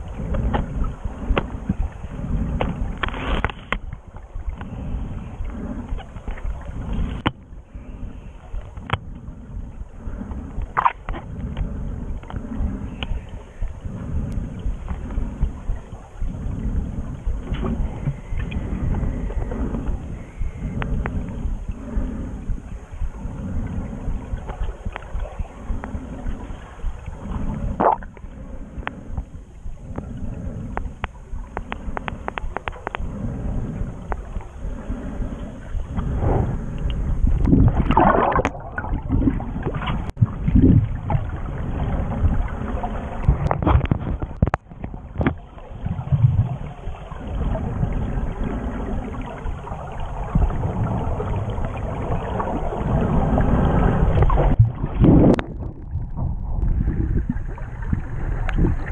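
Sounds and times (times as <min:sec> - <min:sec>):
muffled underwater water rushing: 0:00.0 - 0:58.9
sharp clicks and crackles: 0:02.6 - 0:04.8, 0:27.8 - 0:33.1, 0:43.2 - 0:45.5
bubbles rising: 0:26.2 - 0:28.2, 0:37.4 - 0:58.9.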